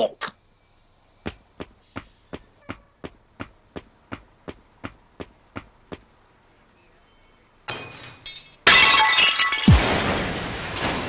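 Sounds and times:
cartoon footsteps: 1.2s - 6.2s.

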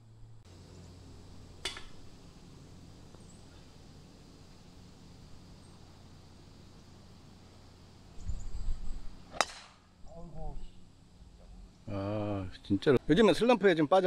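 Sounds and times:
steady low hum: 0.0s - 13.0s
faint bird chirps: 3.1s - 4.2s, 5.2s - 7.1s, 8.0s - 9.3s.

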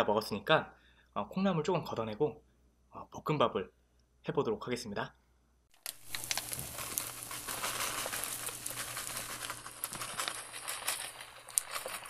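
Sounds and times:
rice sizzling in a pan: 5.8s - 12.0s.

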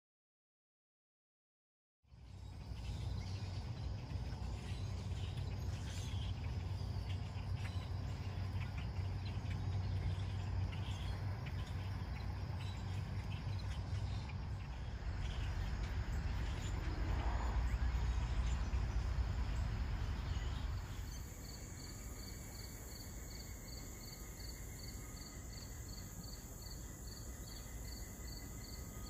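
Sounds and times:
flock of songbirds chirping: 2.1s - 29.0s
low steady rumble: 2.1s - 29.0s.

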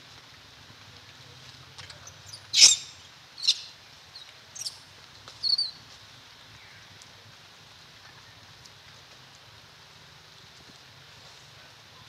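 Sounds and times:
baby monkey squeaking: 2.2s - 3.7s, 4.6s - 4.8s, 5.4s - 5.7s.

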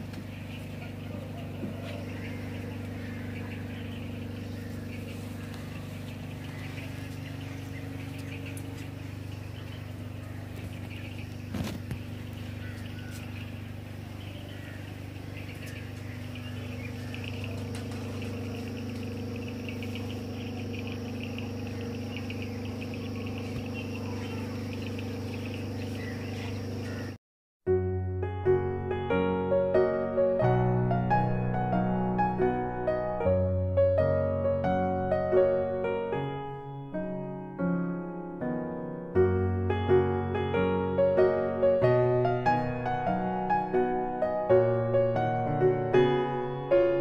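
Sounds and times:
birds chirping: 0.0s - 27.2s
low mechanical hum: 0.0s - 27.2s.

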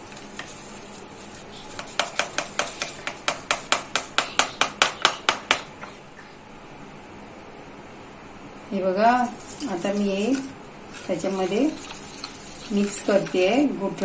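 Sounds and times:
foil packet tapping on steel pan: 1.8s - 5.7s.

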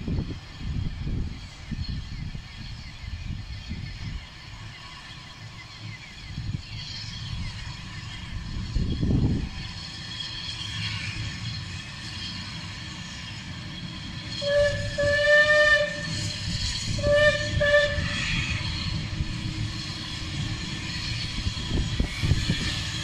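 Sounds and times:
locomotive rumble: 0.0s - 23.0s
steam locomotive whistle: 14.1s - 19.4s.

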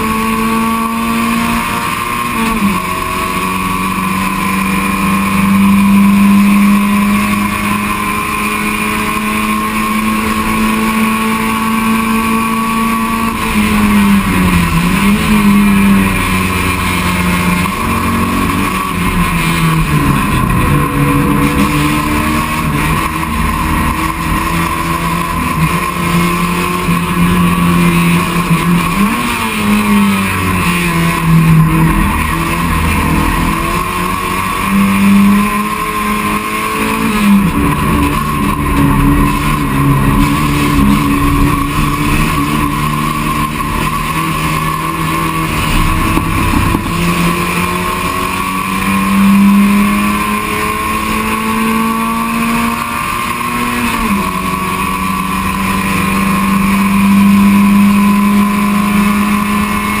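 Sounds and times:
race car engine shifting gears: 0.0s - 60.0s.

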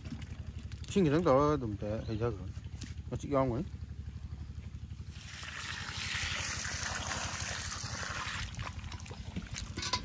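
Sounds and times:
water splashing from a bucket: 0.0s - 1.3s, 5.0s - 10.0s.

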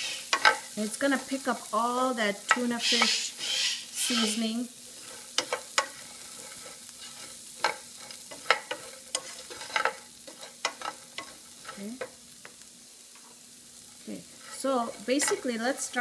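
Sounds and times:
carrots sizzling in a pan: 0.0s - 16.0s
tongs clicking against pan: 0.3s - 0.7s, 5.3s - 6.0s, 6.6s - 12.6s.

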